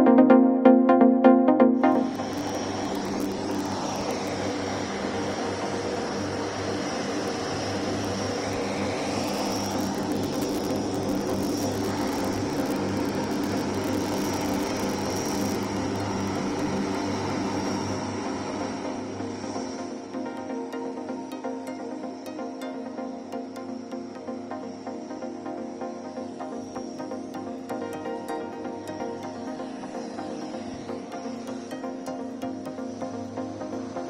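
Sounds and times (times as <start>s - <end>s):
high turbine whine: 0.0s - 34.0s
turboprop engines droning: 0.0s - 34.0s.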